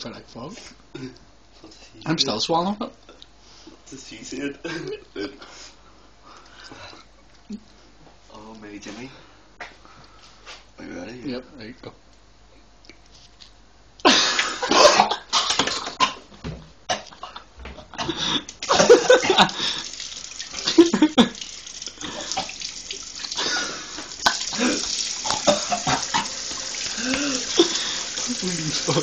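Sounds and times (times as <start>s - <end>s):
person coughing and spluttering: 14.1s - 16.3s, 16.9s - 17.4s, 18.0s - 29.0s
kitchen tap running into sink: 18.5s - 29.0s.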